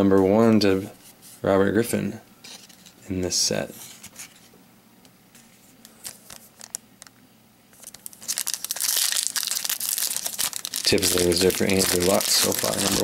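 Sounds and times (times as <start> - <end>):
wrapper tearing and crinkling: 6.0 - 6.8, 7.8 - 13.0.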